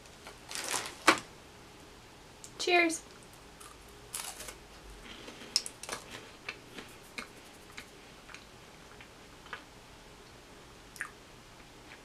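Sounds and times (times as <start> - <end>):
crunchy chewing clicks: 3.0 - 10.4.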